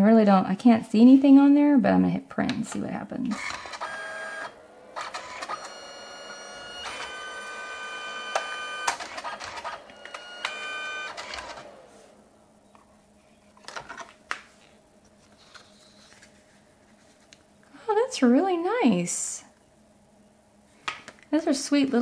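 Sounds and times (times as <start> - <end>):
printer motor whine: 3.3 - 12.8
paper-feed mechanism clicks: 8.3 - 11.8.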